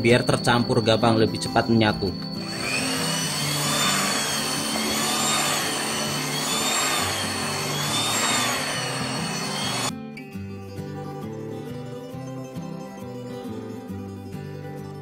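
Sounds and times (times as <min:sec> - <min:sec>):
hand mixer kneading dough: 0:02.2 - 0:09.9.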